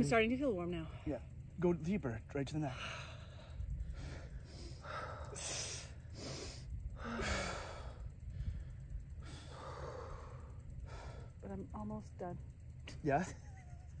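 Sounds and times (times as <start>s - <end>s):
people breathing deeply: 2.7s - 11.4s.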